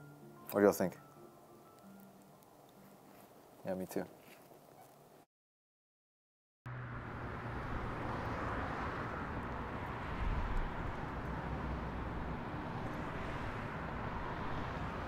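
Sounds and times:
distant traffic hum: 6.7 - 15.0.

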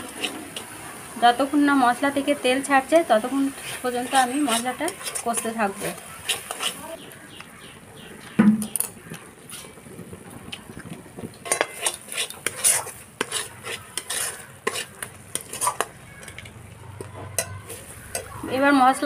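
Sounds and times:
spatula scraping metal pan: 0.0 - 1.1, 2.9 - 7.0, 9.4 - 9.8, 11.4 - 18.8
light sizzle of frying: 0.0 - 19.0.

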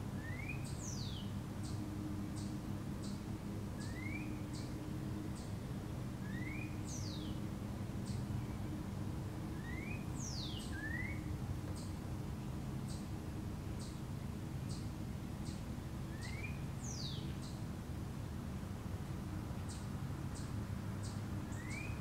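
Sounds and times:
steady low hum: 0.0 - 22.0
songbirds chirping and whistling: 0.1 - 5.6, 6.2 - 8.7, 9.5 - 12.0, 14.7 - 17.6, 19.7 - 22.0.

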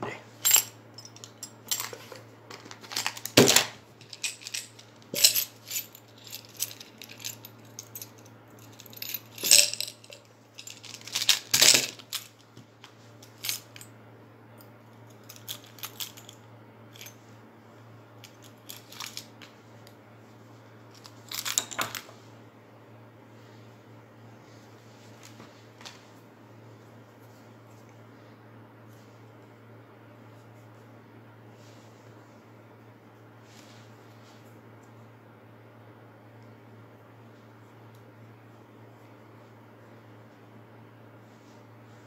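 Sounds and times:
faint low hum: 0.0 - 42.0
metal tools clinking on wood: 4.0 - 12.3.

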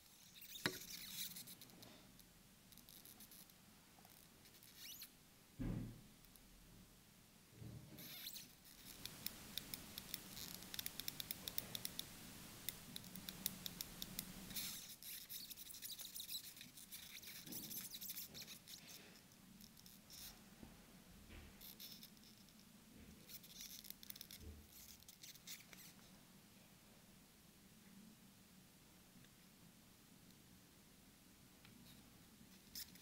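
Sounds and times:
soft low thump: 5.6 - 6.0.

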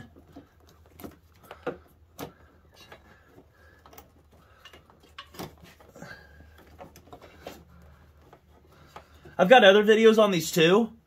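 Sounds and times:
small clicks and knocks: 0.0 - 9.4.

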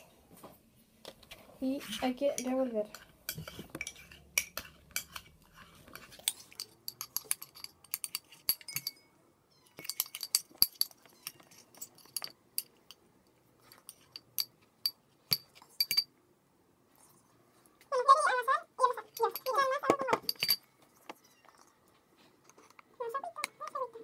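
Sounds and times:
metal spoon clinking in bowl: 2.3 - 5.3, 5.9 - 9.1, 9.7 - 13.0, 13.8 - 16.1, 19.1 - 20.7.

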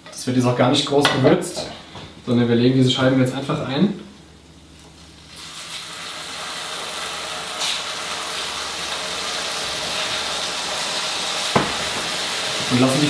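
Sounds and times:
beef sizzling in a hot pan: 5.3 - 13.0.

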